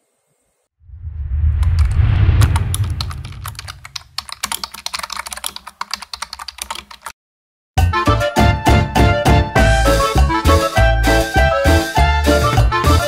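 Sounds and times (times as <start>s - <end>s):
low rumbling whoosh: 0.8s - 4.2s
keyboard typing clicks: 2.5s - 7.1s.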